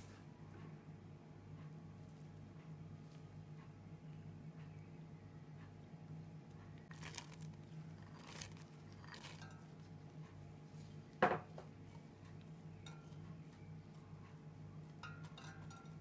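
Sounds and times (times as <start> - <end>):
steady low hum: 0.0 - 16.0
metal spoon scraping steel pot: 8.0 - 9.7.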